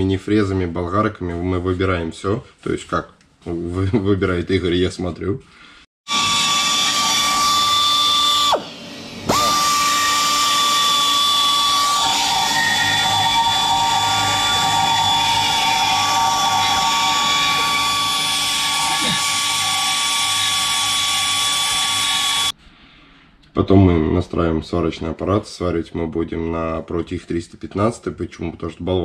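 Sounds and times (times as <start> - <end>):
die grinder whining: 6.1 - 22.5
rough metal cutting: 6.1 - 22.5.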